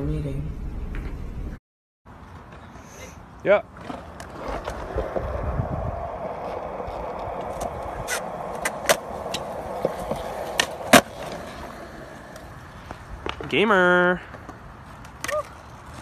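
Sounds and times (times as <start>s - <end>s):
skateboard wheels rolling on concrete: 0.7s - 16.0s
skateboard clacks: 6.0s - 13.6s.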